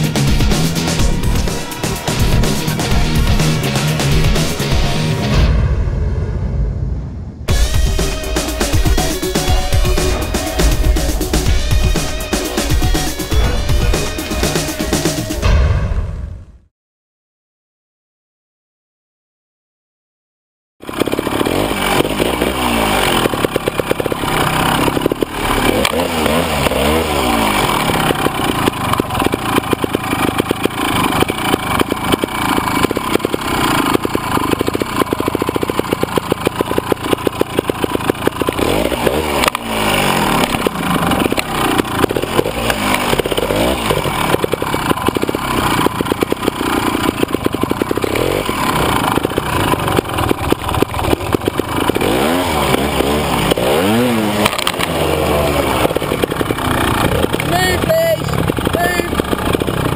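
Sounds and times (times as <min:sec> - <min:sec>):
motorcycle engine revving: 0:00.0 - 0:06.8, 0:07.4 - 0:16.2, 0:20.8 - 0:59.9.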